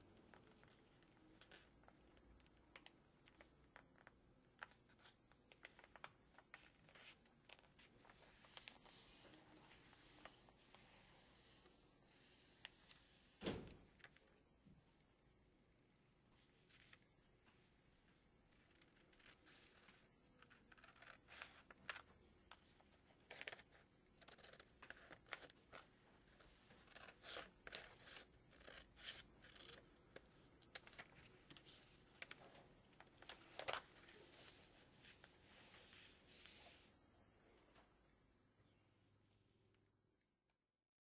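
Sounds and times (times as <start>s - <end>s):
paper rustling: 0.3s - 13.3s, 18.5s - 36.9s.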